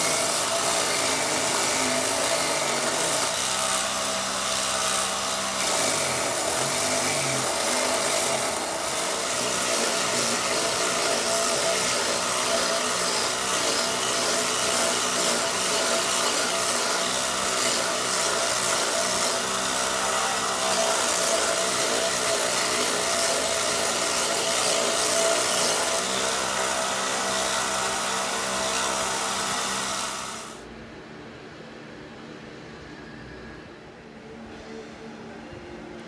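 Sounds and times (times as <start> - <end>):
belt sander motor hum: 0.0 - 30.6
wood being sanded: 0.0 - 30.6.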